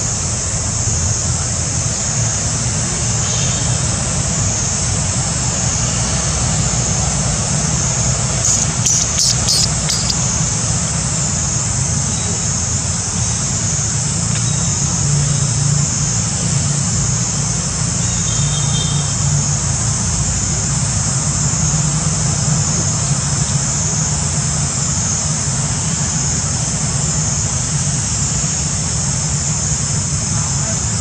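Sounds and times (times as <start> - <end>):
cluster of clicks: 8.4 - 10.2.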